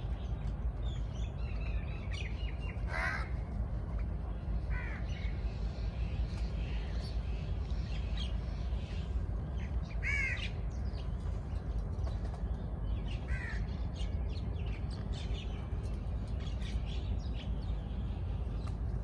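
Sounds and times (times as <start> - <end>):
sparrows chirping: 0.0 - 3.4, 4.0 - 19.0
crow cawing: 2.9 - 3.4, 4.7 - 5.0.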